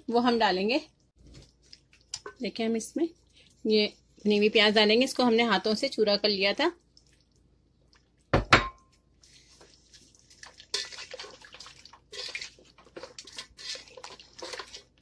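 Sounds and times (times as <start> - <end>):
scraping and rustling in pot: 9.0 - 15.0.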